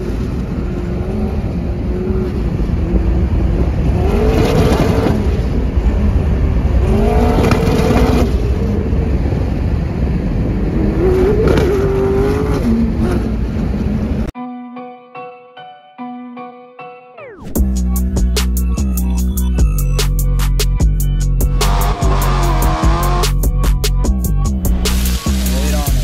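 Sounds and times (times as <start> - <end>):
car engine revving loud: 0.0 - 8.7, 21.4 - 23.6.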